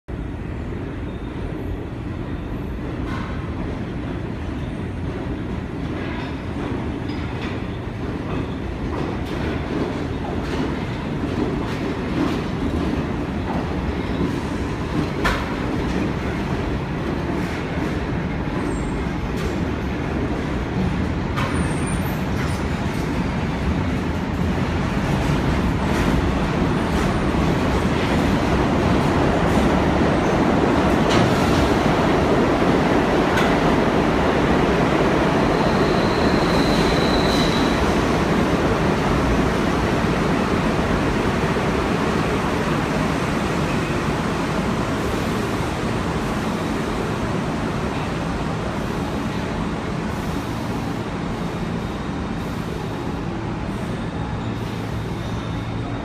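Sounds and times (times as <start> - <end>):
subway train rumbling: 0.1 - 56.0
high wheel squeals: 35.5 - 38.0.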